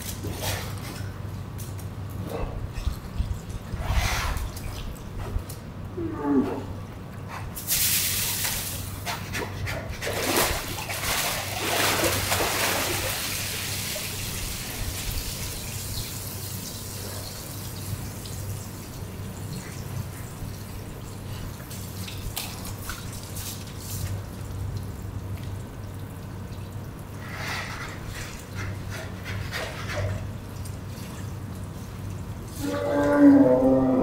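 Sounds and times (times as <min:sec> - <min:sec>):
steady low hum: 0:00.0 - 0:34.0
water splashing and streaming: 0:07.6 - 0:09.4, 0:10.0 - 0:33.4
water trickling and dripping: 0:10.8 - 0:29.0, 0:30.3 - 0:32.7.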